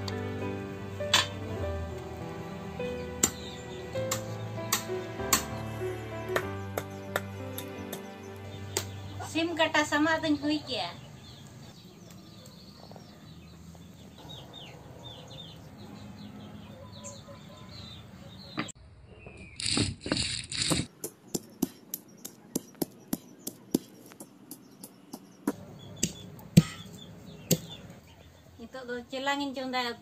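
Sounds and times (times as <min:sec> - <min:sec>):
stone grinding in mortar: 0:19.6 - 0:20.9.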